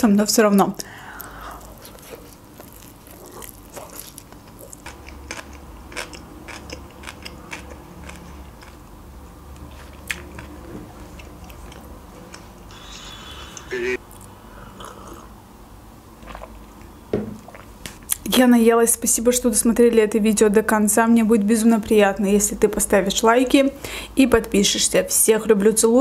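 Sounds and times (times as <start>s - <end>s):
person chewing wetly: 1.2s - 8.8s, 9.6s - 12.5s, 16.2s - 18.2s.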